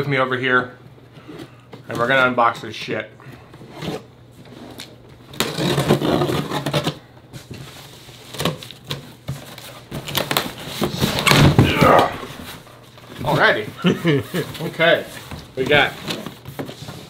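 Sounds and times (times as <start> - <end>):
cardboard knocks and cracks: 9.9 - 12.5.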